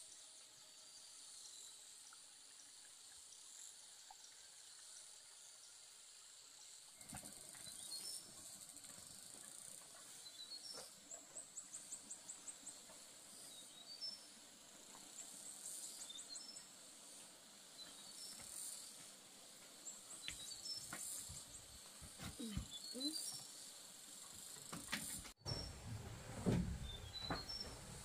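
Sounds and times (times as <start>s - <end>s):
insects chirping: 0.0s - 25.8s, 26.4s - 28.0s.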